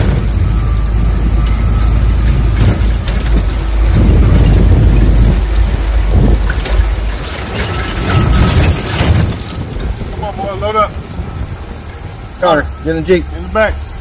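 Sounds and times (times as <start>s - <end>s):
knocks and rattles: 0.0s - 10.4s
vehicle engine and tyres on gravel: 0.0s - 14.0s.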